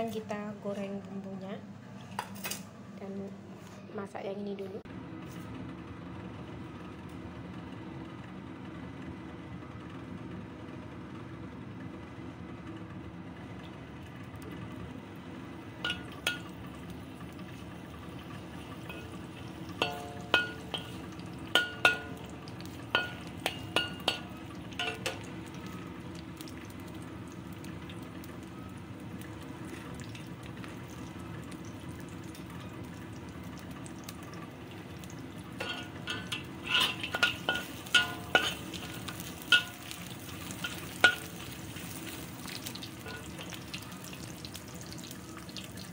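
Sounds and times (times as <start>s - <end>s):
metal spatula clinking on wok: 15.8s - 16.5s, 19.8s - 22.2s, 22.9s - 25.3s, 35.6s - 42.0s, 43.0s - 43.5s.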